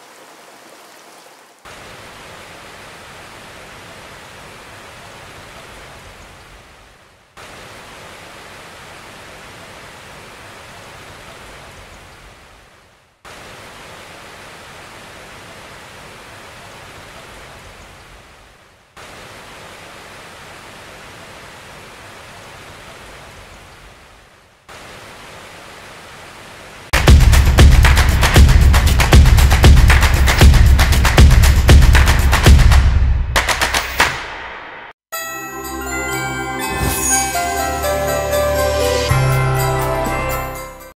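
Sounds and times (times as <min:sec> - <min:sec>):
heavy rain hiss: 0:00.0 - 0:11.6, 0:13.3 - 0:32.6.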